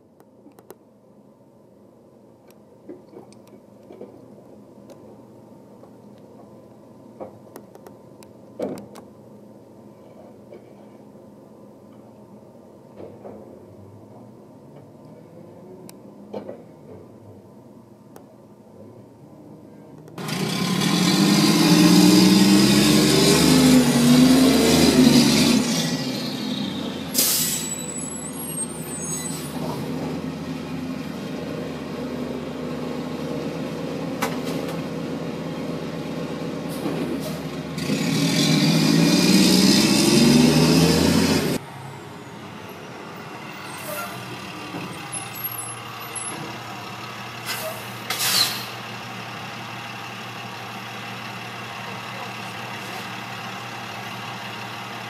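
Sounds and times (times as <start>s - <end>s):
garbage truck diesel engine: 20.1s - 55.0s
air brake hiss: 27.1s - 29.6s, 36.7s - 37.5s, 43.6s - 44.2s, 47.4s - 48.8s.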